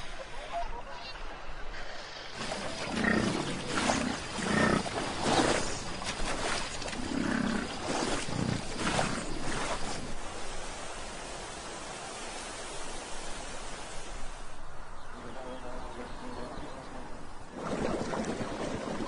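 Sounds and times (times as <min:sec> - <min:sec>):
bison bellowing: 0:02.5 - 0:05.8.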